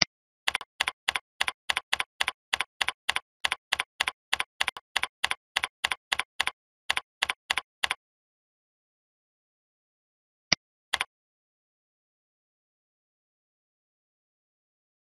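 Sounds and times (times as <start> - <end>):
keyboard typing clicks: 0.0 - 8.0, 10.9 - 11.1.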